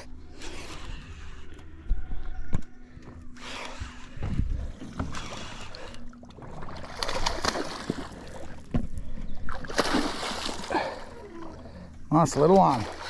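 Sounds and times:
water splashing: 0:04.9 - 0:13.0.

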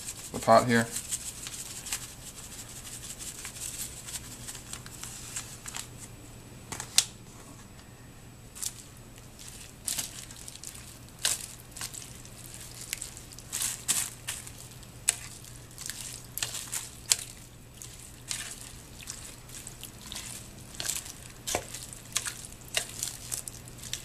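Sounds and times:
thin plastic crinkling: 0:00.0 - 0:06.0, 0:08.6 - 0:24.0
faint low hum: 0:00.0 - 0:24.0.

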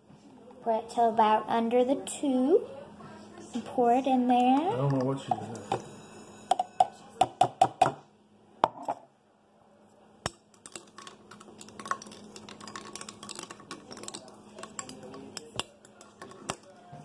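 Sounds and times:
ice cubes clinking against glass: 0:10.7 - 0:16.6.

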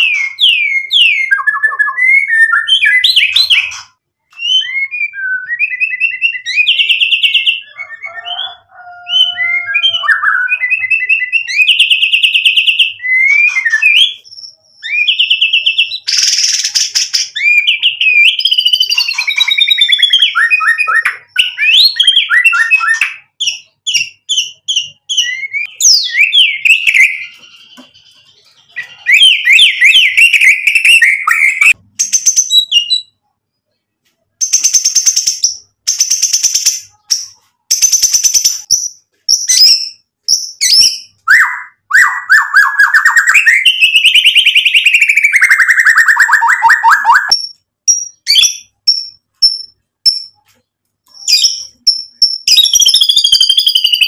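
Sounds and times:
songbird singing varied song: 0:00.0 - 0:33.2, 0:51.1 - 0:54.0.

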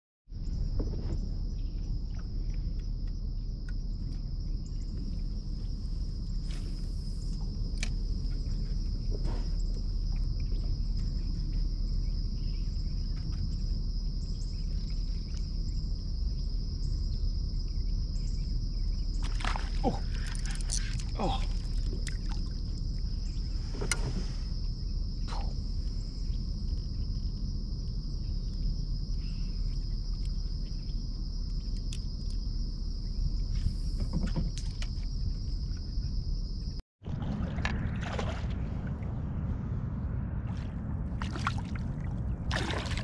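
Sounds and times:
insects trilling: 0:00.3 - 0:36.8
low rumble: 0:35.4 - 0:43.0.

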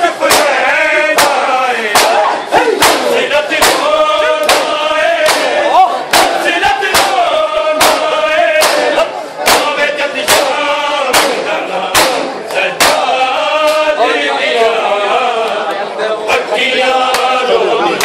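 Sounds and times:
men chanting a lament: 0:00.0 - 0:18.0
chest-beating slaps: 0:00.3 - 0:13.9.

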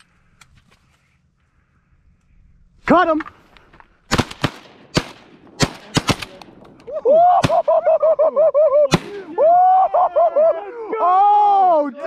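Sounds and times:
shotgun shots: 0:04.1 - 0:06.7, 0:07.4 - 0:07.7, 0:08.9 - 0:09.3.

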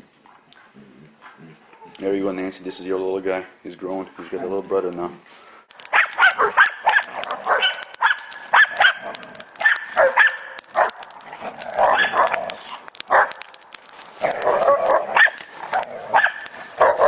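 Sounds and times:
dogs barking and yipping: 0:05.8 - 0:13.6, 0:14.2 - 0:17.0.

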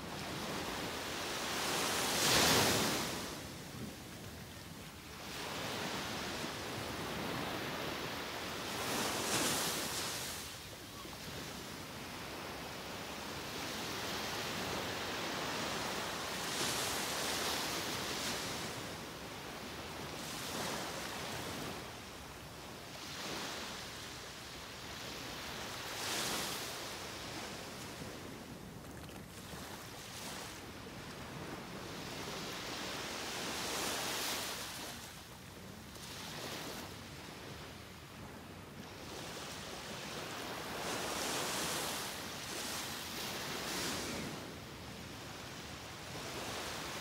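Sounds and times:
small waves breaking on beach: 0:00.0 - 0:47.0.

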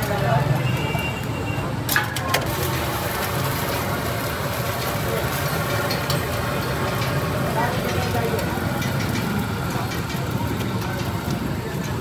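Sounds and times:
eggs sizzling on a griddle: 0:00.0 - 0:12.0.

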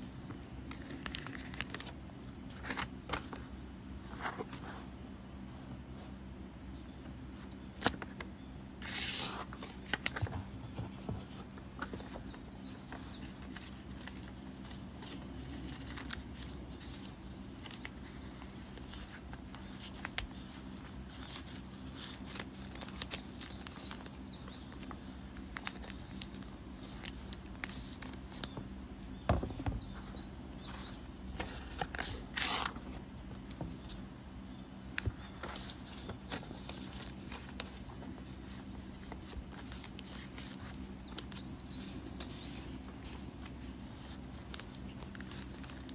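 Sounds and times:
steady low hum: 0:00.0 - 0:45.9
paper and plastic sleeve rustling: 0:00.6 - 0:03.4, 0:08.8 - 0:28.6, 0:35.0 - 0:45.9.

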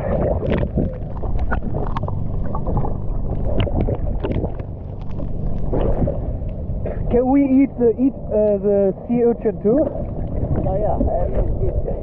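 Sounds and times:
seawater sloshing and splashing: 0:00.0 - 0:07.2.

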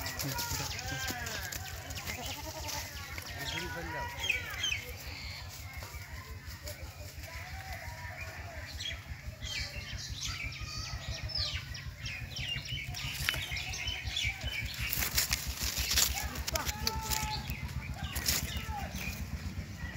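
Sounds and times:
small birds chirping: 0:00.0 - 0:19.9
steady low rumble: 0:04.8 - 0:19.9.

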